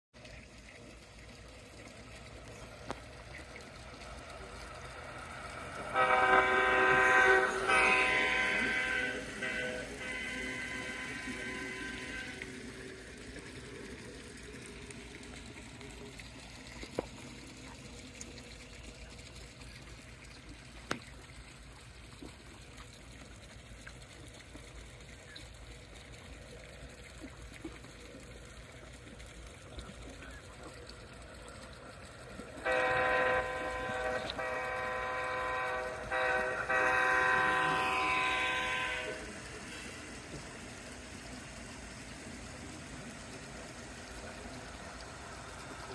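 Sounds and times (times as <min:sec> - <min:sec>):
model locomotive diesel horn: 0:05.6 - 0:13.0, 0:32.6 - 0:40.0.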